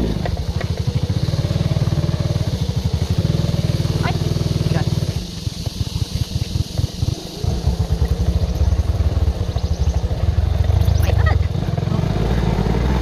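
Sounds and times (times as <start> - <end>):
motorcycle engine putter: 0.0 - 1.9.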